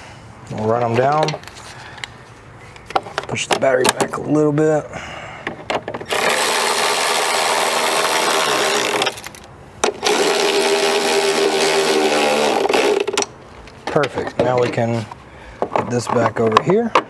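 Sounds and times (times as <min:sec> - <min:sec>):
cordless electric ratchet running: 0:06.1 - 0:13.2.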